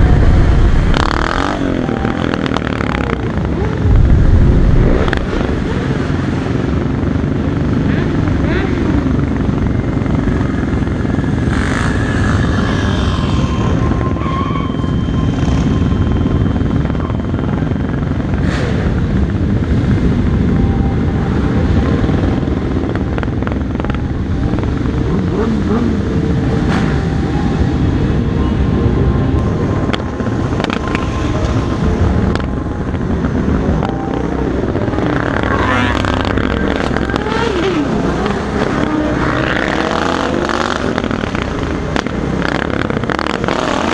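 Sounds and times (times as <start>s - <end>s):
wind rush: 0.0s - 7.8s
engines revving: 0.0s - 14.2s, 17.7s - 43.9s
motorcycle engines running: 0.0s - 43.9s.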